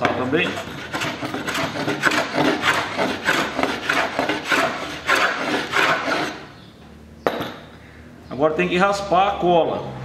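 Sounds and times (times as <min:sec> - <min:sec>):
hand plane shaving wood: 0:00.3 - 0:06.5.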